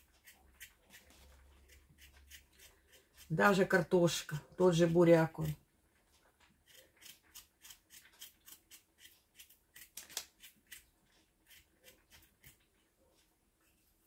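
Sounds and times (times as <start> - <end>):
knife scraping potato skin: 0.0 - 3.9, 6.5 - 12.7.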